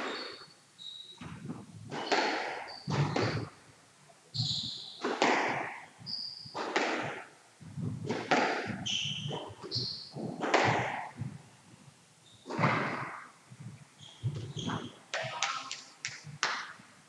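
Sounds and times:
shoes squeaking on court floor: 0.0 - 3.6, 4.3 - 11.5, 12.2 - 16.5
squash ball hitting walls: 1.2 - 3.6, 4.6 - 11.4, 12.4 - 13.4, 14.2 - 16.8.

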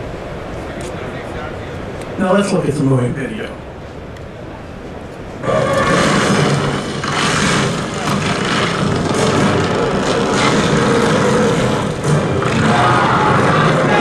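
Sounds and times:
film sound effects over loudspeakers: 5.4 - 14.0.

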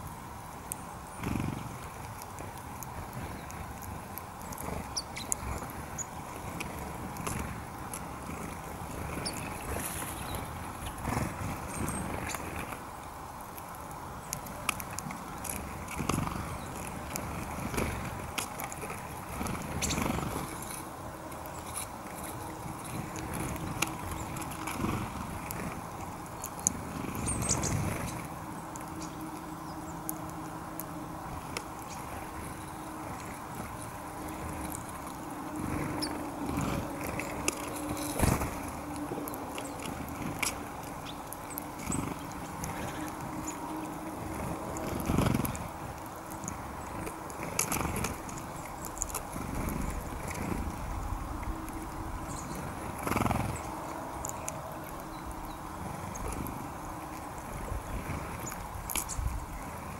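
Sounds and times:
birds pecking and cracking seeds: 0.0 - 59.9
wings fluttering: 0.7 - 12.9, 13.8 - 59.9.

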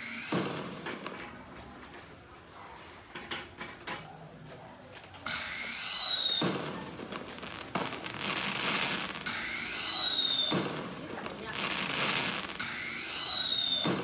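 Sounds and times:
whistling rocket launch: 0.0 - 1.0, 5.3 - 14.0
firework bang: 0.0 - 1.8, 5.3 - 14.0
firework crackling: 0.0 - 2.2, 5.2 - 14.0.

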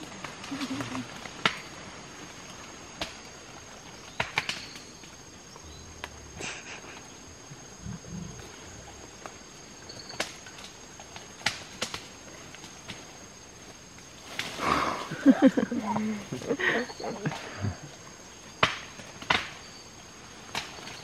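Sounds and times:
twigs and branches snapping: 0.0 - 1.8, 2.9 - 3.3, 4.1 - 5.2, 10.1 - 13.1, 13.9 - 14.6, 18.6 - 19.7, 20.4 - 21.0
high insect hum: 0.0 - 21.0
gorilla grunts: 14.6 - 18.0.

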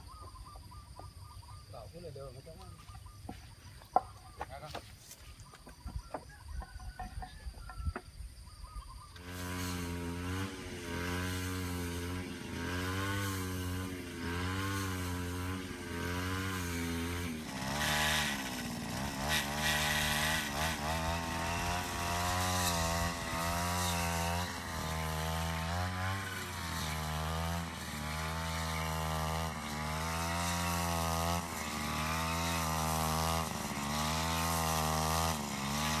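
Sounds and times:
small two-stroke engine running: 9.0 - 36.0.

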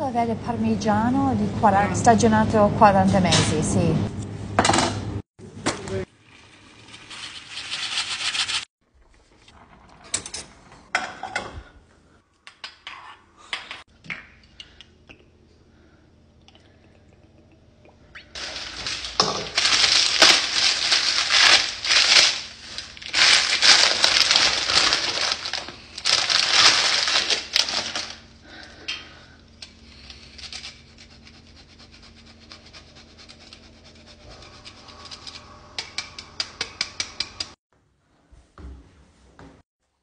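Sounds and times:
plastic bag crinkling: 18.4 - 28.4.

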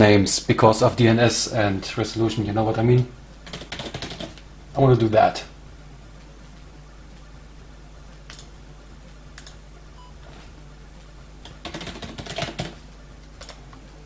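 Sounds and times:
steady low hum: 0.0 - 14.0
keyboard typing: 3.4 - 4.4, 11.4 - 12.8.

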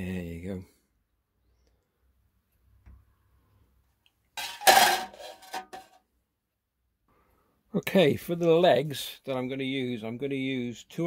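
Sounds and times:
sheet metal clattering on workbench: 4.4 - 5.9.

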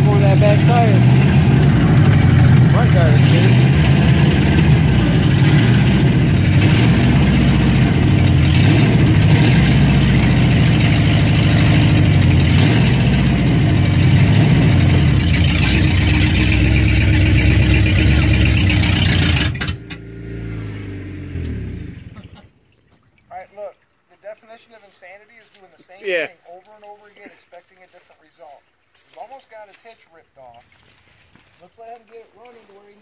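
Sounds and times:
truck engine revving: 0.0 - 22.4.

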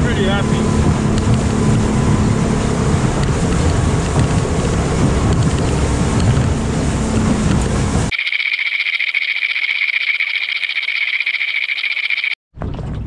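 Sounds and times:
outboard motor running: 0.0 - 8.1
water rushing past hull: 0.0 - 8.1
wind buffeting microphone: 0.0 - 8.1.

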